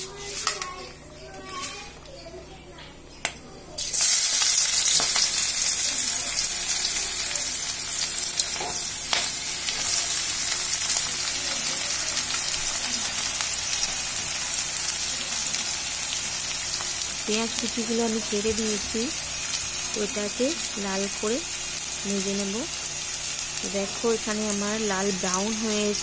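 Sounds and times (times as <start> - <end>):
onions sizzling in hot oil: 3.8 - 26.0.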